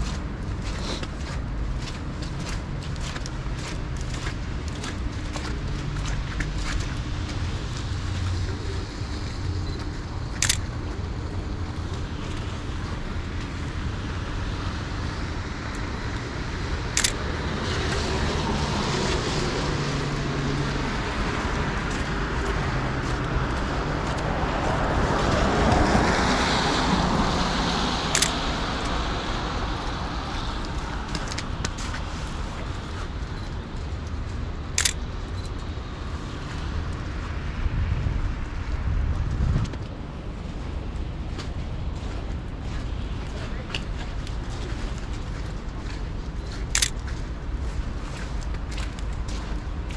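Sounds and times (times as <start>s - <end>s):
street traffic noise: 0.0s - 49.9s
camera shutter clicks: 10.4s - 10.6s, 17.0s - 17.2s, 28.2s - 28.4s, 34.8s - 35.0s, 46.8s - 47.0s.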